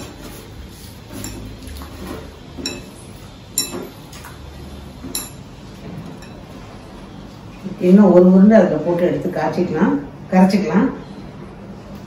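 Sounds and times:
utensils clinking against bowl: 0.0s - 6.7s.

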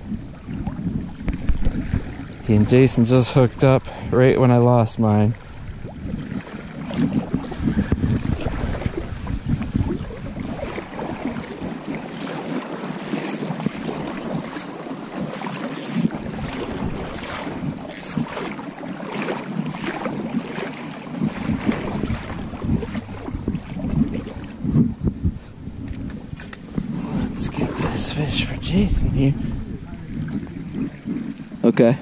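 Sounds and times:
wind buffeting microphone: 0.0s - 32.0s
river water rushing: 10.1s - 24.6s.

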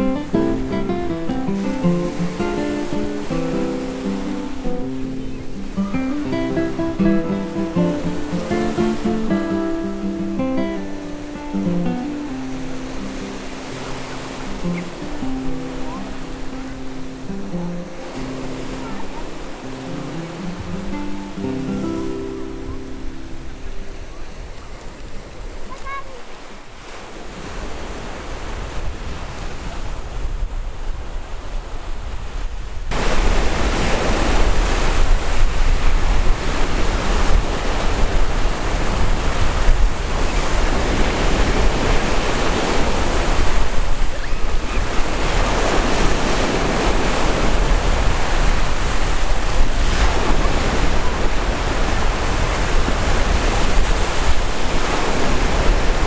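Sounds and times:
ocean surf breaking: 0.0s - 56.0s
wind buffeting microphone: 23.7s - 56.0s.

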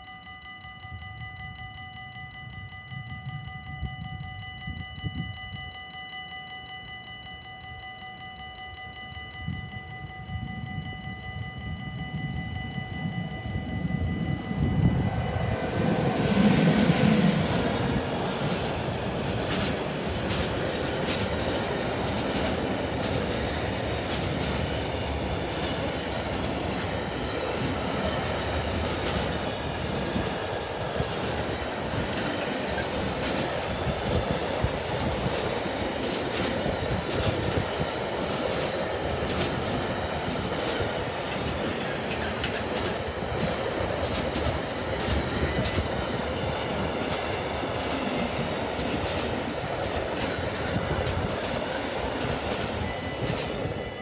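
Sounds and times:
electric locomotive passing: 0.0s - 54.0s
train wheels rumbling: 12.1s - 54.0s
wheels clacking over track: 16.9s - 53.6s.

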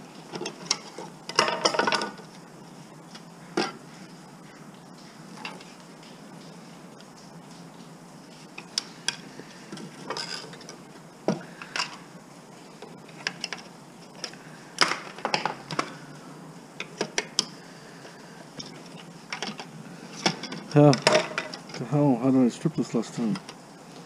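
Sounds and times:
metal tools and parts clattering: 0.3s - 2.2s, 10.0s - 10.7s, 18.9s - 21.9s.

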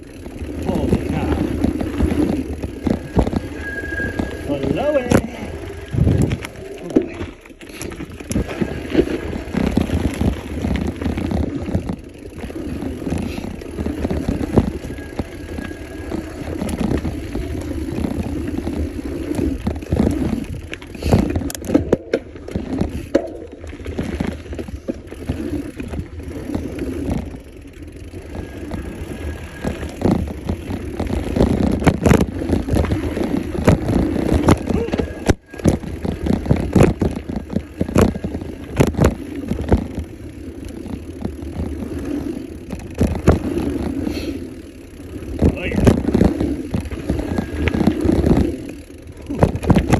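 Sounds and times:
bike rattling over bumps: 0.0s - 49.9s
tyres rolling over dirt: 0.0s - 49.9s
wind rushing over microphone: 0.6s - 6.7s.

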